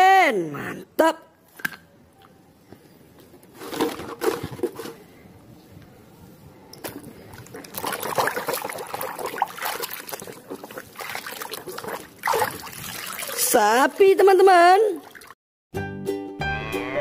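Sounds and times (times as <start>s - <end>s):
water sloshing in plastic tub: 6.9s - 15.4s.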